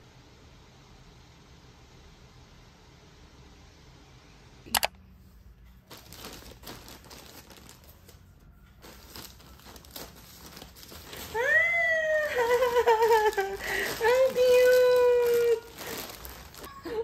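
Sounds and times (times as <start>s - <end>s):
sharp double click: 4.7s - 5.0s
plastic bag crinkling: 5.8s - 17.0s.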